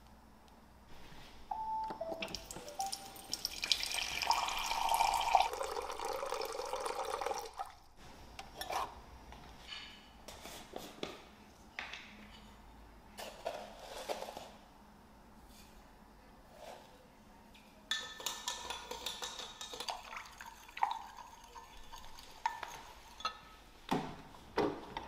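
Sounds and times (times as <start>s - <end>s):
water running into cup: 2.3s - 7.9s, 19.7s - 23.2s.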